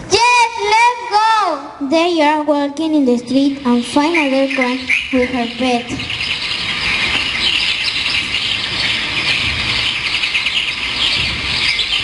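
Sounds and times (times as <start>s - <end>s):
small birds chirping chorus: 3.2s - 12.0s.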